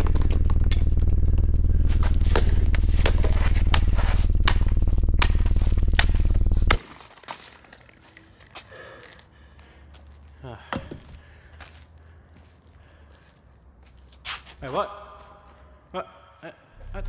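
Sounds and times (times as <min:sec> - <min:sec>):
loud low buzzing drone: 0:00.0 - 0:06.8, 0:16.8 - 0:17.0
hammer hitting device: 0:02.2 - 0:07.0.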